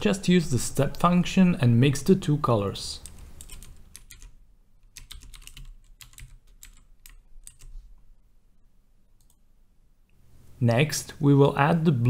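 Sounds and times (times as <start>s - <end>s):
typing on computer keyboard: 3.0s - 7.7s.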